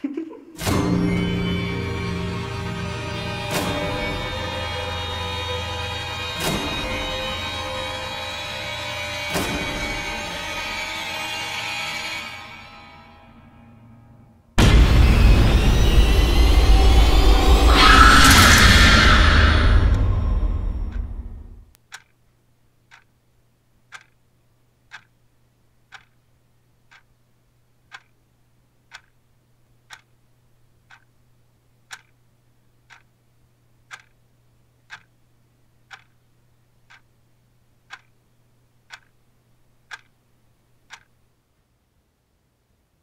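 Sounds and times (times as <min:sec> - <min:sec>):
clock ticking: 0:19.9 - 0:22.2, 0:22.8 - 0:23.2, 0:23.8 - 0:41.3.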